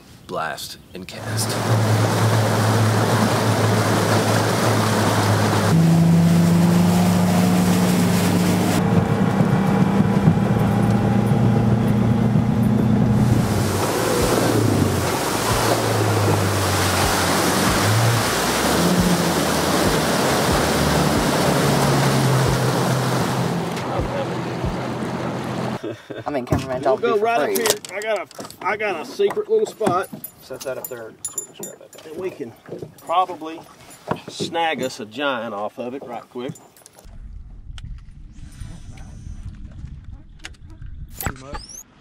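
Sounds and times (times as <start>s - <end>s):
outboard motor running: 1.2s - 25.8s
rushing water from wake: 1.2s - 25.8s
wind on microphone: 7.5s - 25.1s, 37.1s - 41.8s.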